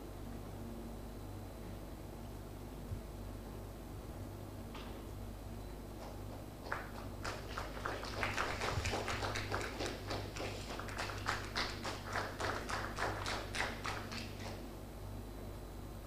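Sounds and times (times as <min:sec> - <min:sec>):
small audience applauding: 0:06.0 - 0:14.6.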